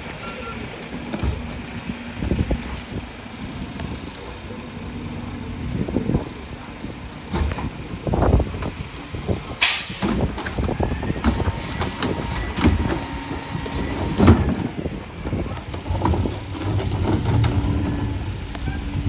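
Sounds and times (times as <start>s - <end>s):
truck engine running: 0.0s - 19.0s
garbage truck cart tipper clanking: 9.6s - 19.0s.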